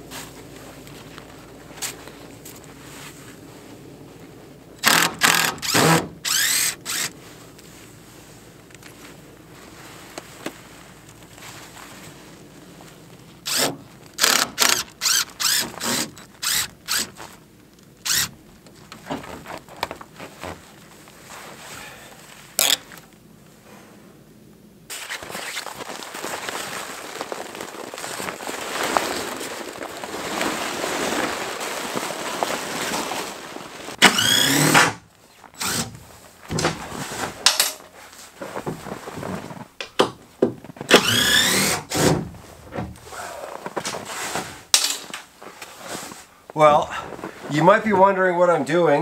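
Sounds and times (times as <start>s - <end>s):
cordless drill bursts: 4.8s - 7.2s, 13.4s - 17.1s, 18.0s - 18.3s, 34.0s - 35.0s, 35.6s - 35.9s, 40.9s - 42.1s.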